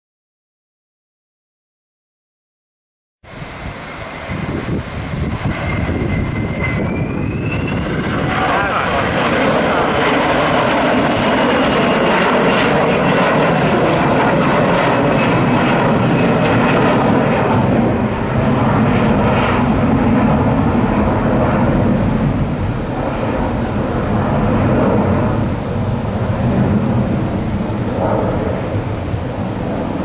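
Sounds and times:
jet engines at high thrust: 3.2 - 30.0.

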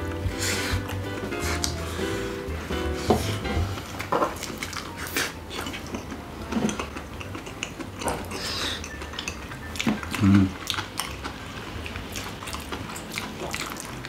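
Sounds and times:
people chewing and biting: 0.0 - 14.0
chopsticks clicking on bowls: 4.4 - 11.3.

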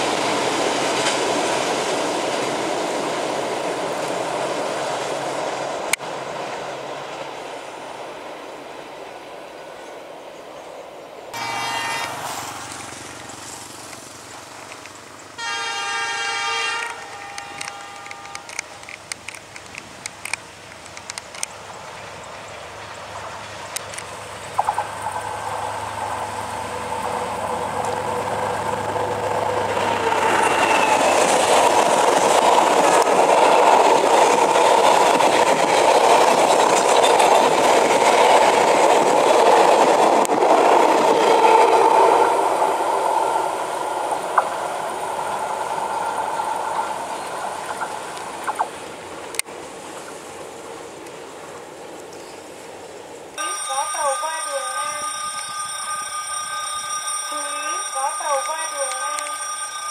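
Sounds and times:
train wheels rumbling on rails: 0.0 - 9.2, 11.4 - 52.6
sharp clicks: 16.8 - 21.6.

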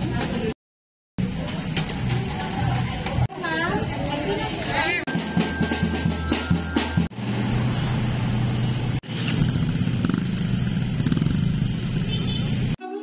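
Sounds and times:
road noise: 1.2 - 12.8
music: 5.1 - 7.1, 12.8 - 13.0
idling car and motorcycle engines: 7.2 - 12.8.

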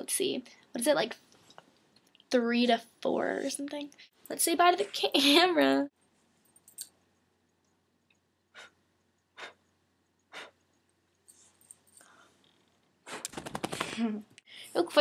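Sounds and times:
soft breaths: 11.3 - 14.8.

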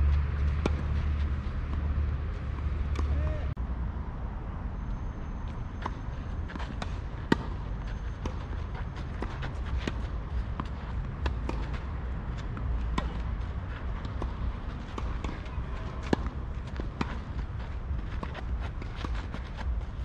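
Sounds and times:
rackets striking tennis ball: 8.2 - 17.4.

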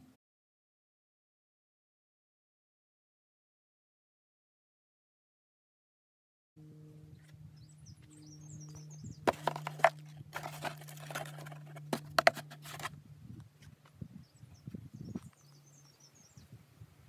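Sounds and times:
steady low hum: 6.6 - 17.0
birds chirping faintly: 7.1 - 11.9, 13.5 - 16.6
rustling straps: 9.3 - 12.9.

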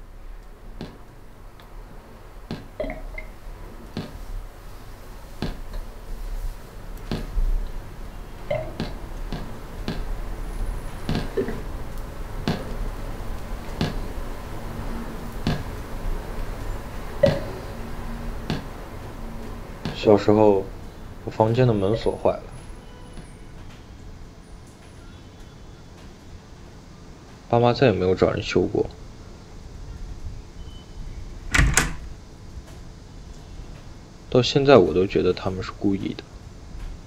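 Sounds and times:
water dripping: 0.0 - 24.9
steady low hum: 0.0 - 37.0.

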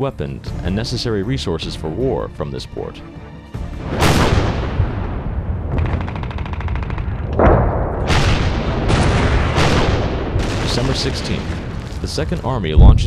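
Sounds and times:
heavy gun blasts echoing: 3.8 - 13.0
constant low rumble: 4.3 - 13.0.

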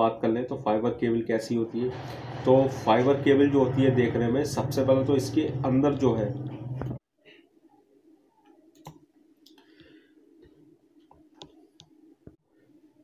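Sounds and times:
low steady hum: 1.9 - 7.0.

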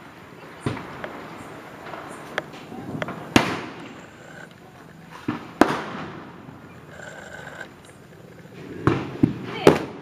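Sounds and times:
firecracker bangs: 2.9 - 3.8, 5.2 - 6.3.

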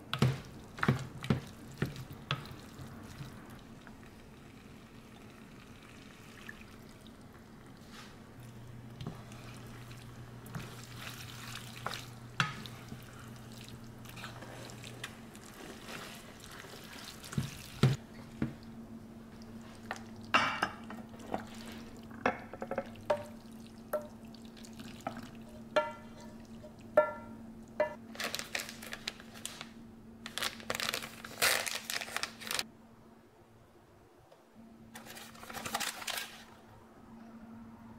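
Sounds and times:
spatula stirring wet spaghetti: 0.1 - 3.7, 7.8 - 18.0
spatula knocking and scraping pan: 25.5 - 28.0.

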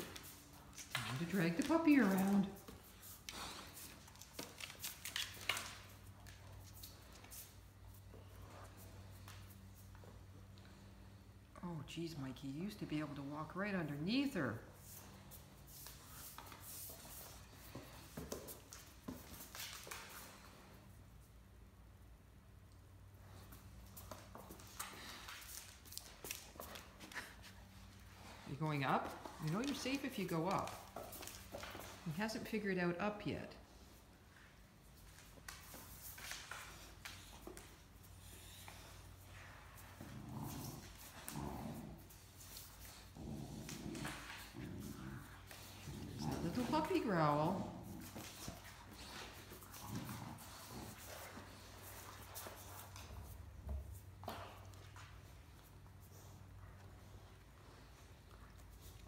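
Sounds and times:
dog claws clicking on stone floor: 0.0 - 8.1
puppy growling: 39.4 - 51.6.

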